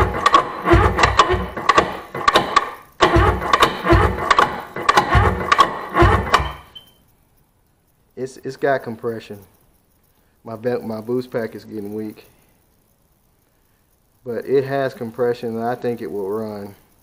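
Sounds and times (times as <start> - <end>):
electric starter cranking engine: 0.0 - 6.9.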